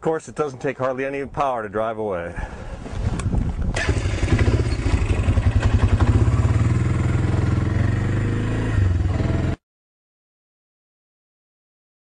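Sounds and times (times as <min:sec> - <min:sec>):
atv engine running at low speed: 0:03.2 - 0:09.6.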